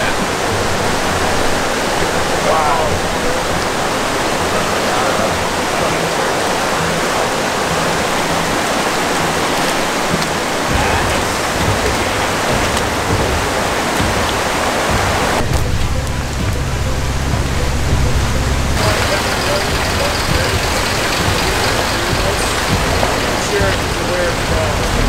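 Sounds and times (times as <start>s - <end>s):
rushing water: 0.0s - 25.0s
low rumble: 10.1s - 25.0s.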